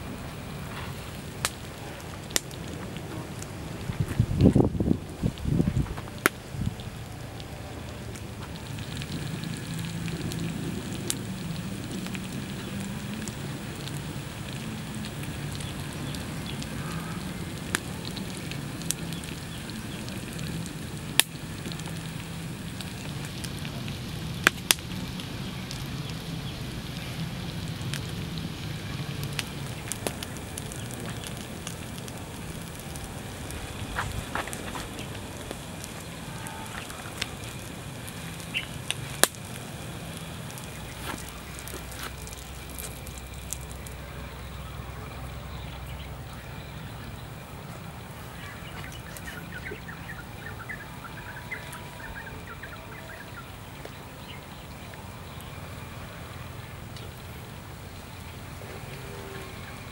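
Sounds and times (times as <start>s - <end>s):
fire crackling pops: 0.0s - 59.9s
wood fire hissing and rushing: 0.0s - 59.9s.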